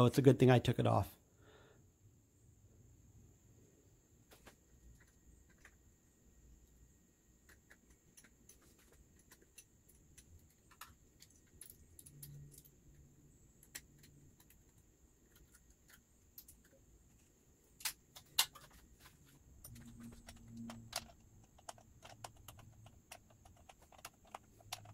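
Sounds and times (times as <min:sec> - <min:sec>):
faint metallic clicks and jingling: 0:07.4 - 0:24.9.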